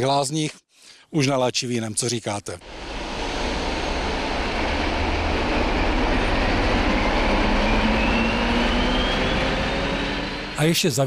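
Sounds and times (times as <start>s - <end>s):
diesel locomotive engine: 2.6s - 11.0s
high whine rising in pitch: 2.6s - 11.0s.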